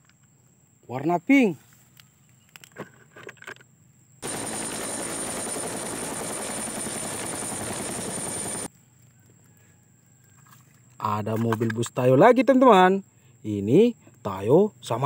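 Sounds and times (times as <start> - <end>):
helicopter rotor chop: 4.2 - 8.7
high turbine whine: 4.2 - 8.7.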